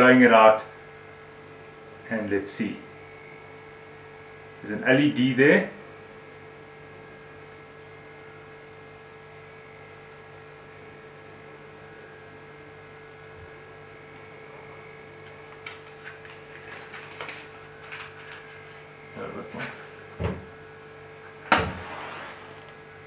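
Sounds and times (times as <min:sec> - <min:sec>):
electrical hum: 0:00.0 - 0:23.0
faint clicks and rustles: 0:15.2 - 0:18.9.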